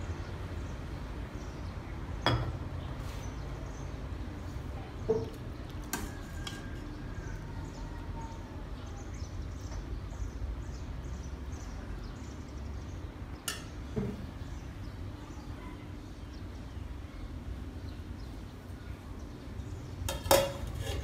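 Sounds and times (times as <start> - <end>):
small birds chirping: 0.0 - 21.0
metal ladle clinking on pot: 13.4 - 13.8, 20.1 - 21.0.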